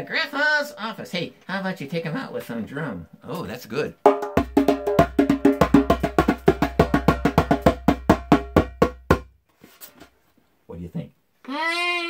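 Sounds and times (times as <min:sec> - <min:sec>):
djembe taps and slaps: 0:04.1 - 0:09.3.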